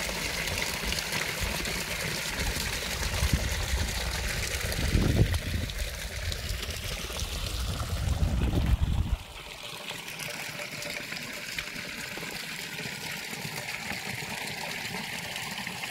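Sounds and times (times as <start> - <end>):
stream trickling over rocks: 0.0 - 15.9
low rumble: 7.5 - 9.2.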